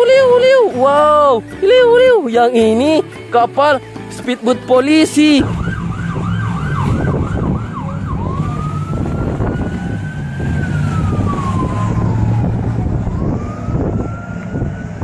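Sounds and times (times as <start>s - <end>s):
low engine drone: 5.2s - 15.0s
police siren: 5.4s - 15.0s.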